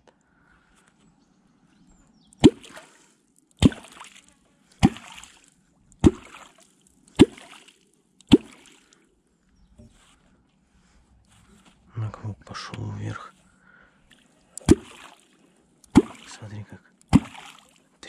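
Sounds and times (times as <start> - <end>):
hollow plop in water: 2.4 - 3.0, 3.6 - 4.2, 4.8 - 8.9, 14.1 - 16.3, 17.1 - 17.8
splashy gurgle: 2.4 - 9.0, 14.1 - 18.0.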